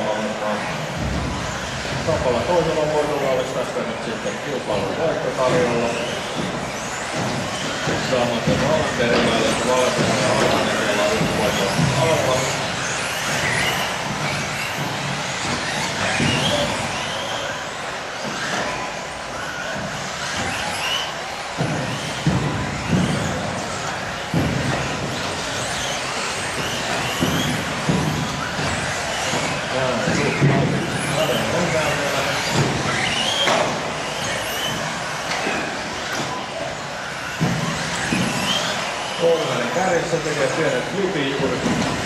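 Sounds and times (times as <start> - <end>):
rc car motors whining: 0.0 - 42.0
rush of tyres and drivetrains: 0.0 - 42.0
sharp knocks: 18.2 - 42.0.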